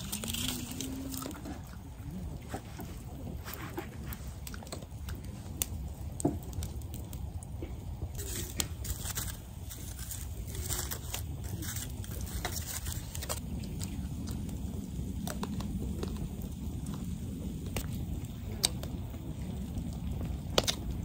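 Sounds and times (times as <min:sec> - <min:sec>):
campfire crackling and popping: 0:00.0 - 0:21.0
scraping and rustling: 0:02.4 - 0:04.9, 0:08.2 - 0:13.4.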